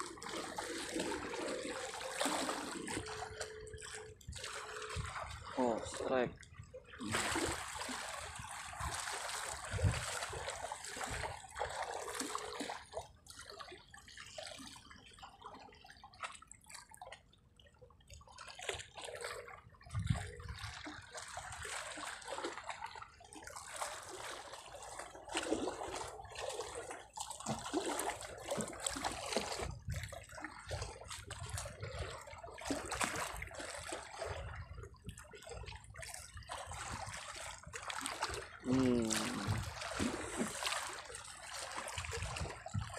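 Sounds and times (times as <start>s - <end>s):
water lapping against rocks: 0.0s - 17.3s, 18.0s - 42.9s.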